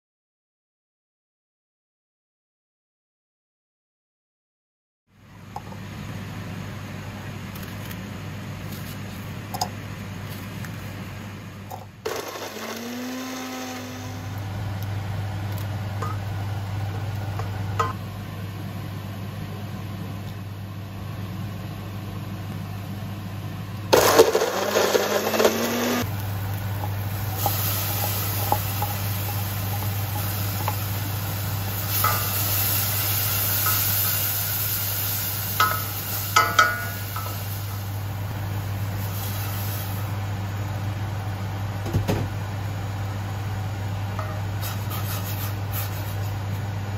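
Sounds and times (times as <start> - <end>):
blender motor whining: 12.1 - 14.5, 24.0 - 26.1.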